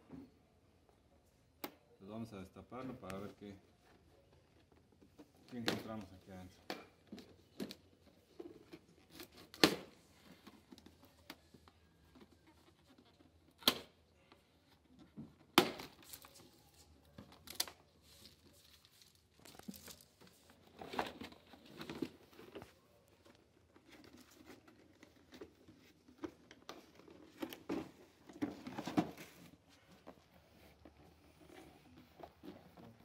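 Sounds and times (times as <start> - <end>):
cardboard crinkling and rustling: 2.8 - 13.6, 14.6 - 33.0.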